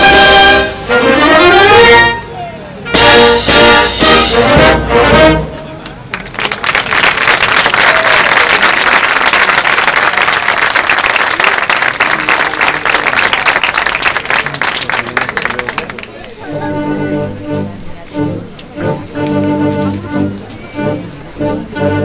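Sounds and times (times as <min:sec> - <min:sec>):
audience applauding: 0:06.1 - 0:16.4.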